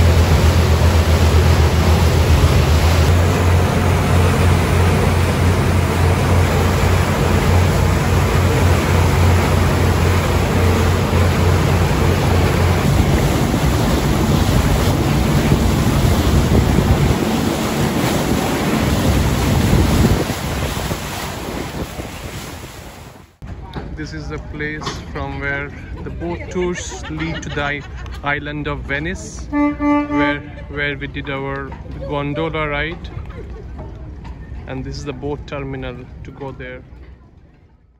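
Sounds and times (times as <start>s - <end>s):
motorboat engine drone: 0.0s - 22.2s
wind buffeting microphone: 0.0s - 23.1s
churning boat wake: 0.0s - 36.7s.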